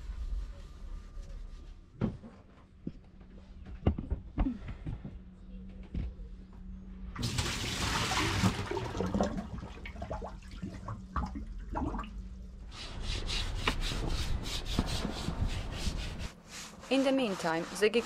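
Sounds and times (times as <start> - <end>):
brush scrubbing wooden deck: 12.8 - 18.0.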